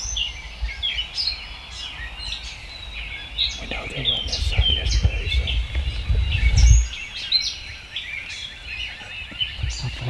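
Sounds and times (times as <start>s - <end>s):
songbirds chirping and singing: 0.0s - 10.0s
low rumble: 3.6s - 7.2s.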